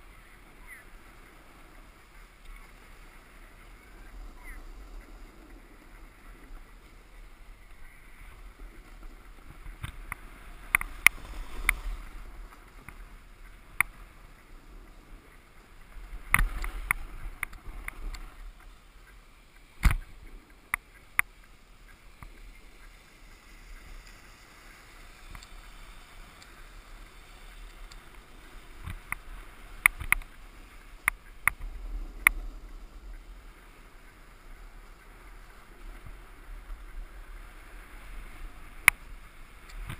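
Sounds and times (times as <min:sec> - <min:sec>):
snowboard scraping over snow: 0:00.0 - 0:18.8.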